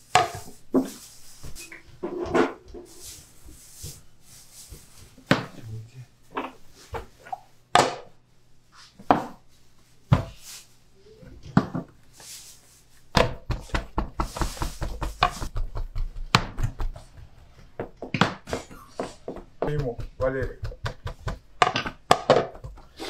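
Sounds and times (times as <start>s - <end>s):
dough slapped on wooden board: 13.1s - 17.0s, 19.6s - 22.8s.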